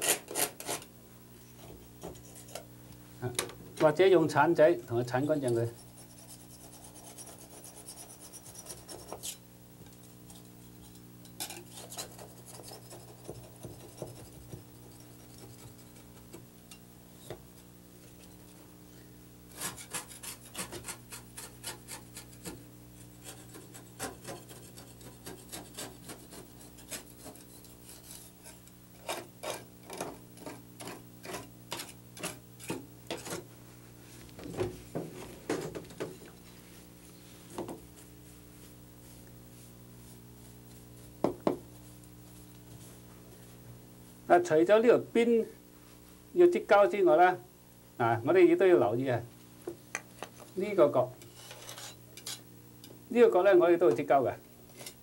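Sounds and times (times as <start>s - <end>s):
scraper blade scraping caulk: 19.5s - 22.6s.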